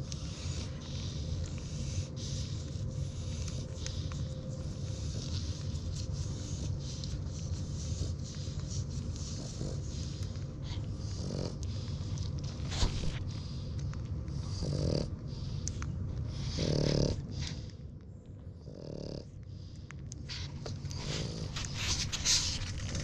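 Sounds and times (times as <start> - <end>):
puppies suckling and snuffling: 0.0 - 23.0
steady low rumble: 0.0 - 23.0
puppy grunt: 14.4 - 15.3, 16.3 - 17.6, 20.4 - 23.0.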